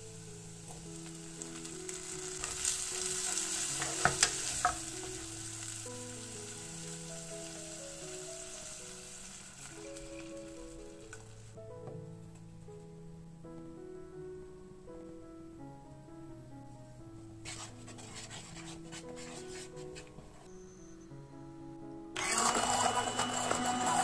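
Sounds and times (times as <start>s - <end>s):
food sizzling in a pan: 0.0s - 11.5s, 22.2s - 24.0s
soft instrumental music: 0.0s - 24.0s.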